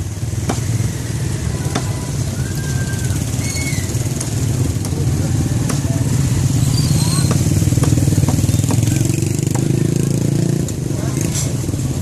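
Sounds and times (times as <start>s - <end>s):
busy street ambience: 0.0s - 12.0s
sharp knocks: 7.2s - 9.8s.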